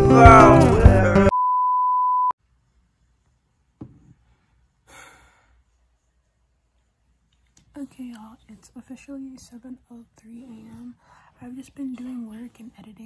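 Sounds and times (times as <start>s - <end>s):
acoustic guitar music: 0.0s - 1.3s
steady single-pitched beep: 1.3s - 2.3s
faint breaths: 4.2s - 6.0s, 10.2s - 11.6s.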